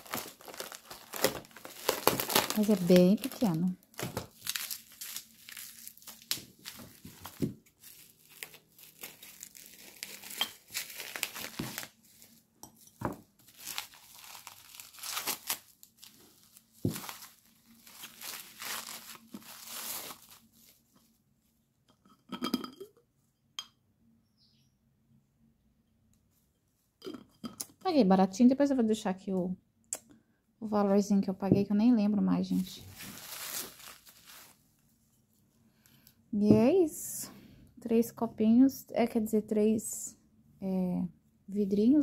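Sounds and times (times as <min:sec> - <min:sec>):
bubble wrap crinkling: 0:00.0 - 0:21.2, 0:32.5 - 0:34.8
glass jars clinking: 0:22.0 - 0:23.0.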